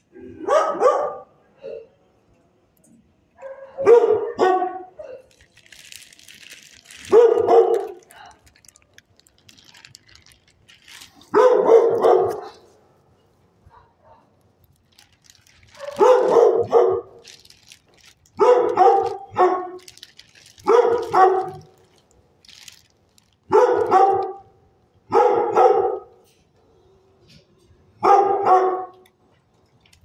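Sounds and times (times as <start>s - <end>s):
dog barking: 0.4s - 2.0s, 3.4s - 5.3s, 7.0s - 8.0s, 11.3s - 12.7s, 13.7s - 14.3s, 15.8s - 17.3s, 18.4s - 19.8s, 20.6s - 21.7s, 23.5s - 24.5s, 25.1s - 26.2s, 28.0s - 29.0s.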